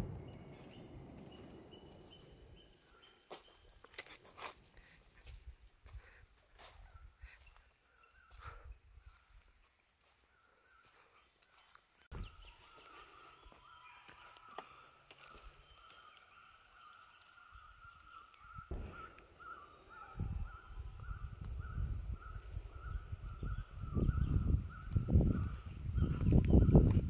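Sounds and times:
low rumbling noise: 0.0 - 3.0
bird chirping: 0.0 - 4.2.

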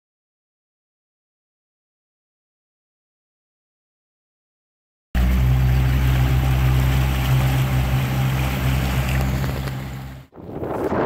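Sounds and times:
outboard motor running: 5.2 - 10.3
water rushing in wake: 5.2 - 11.0
wind noise on microphone: 9.1 - 11.0.

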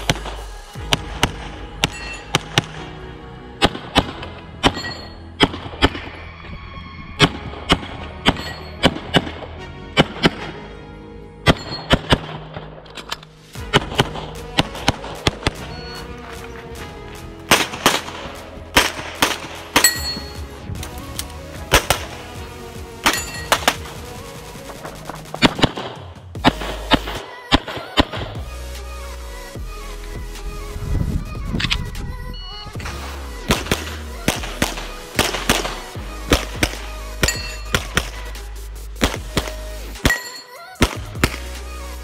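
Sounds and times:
background music with bass line: 0.0 - 27.3, 27.9 - 42.0
pistol shots: 17.5 - 20.3, 25.3 - 28.4, 33.5 - 38.2, 39.0 - 41.6.

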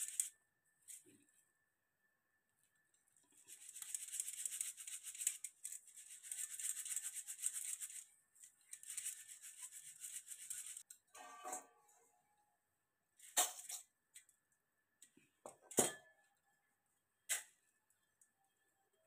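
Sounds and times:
grain scratching on sieve mesh: 0.0 - 0.3, 3.3 - 10.8.

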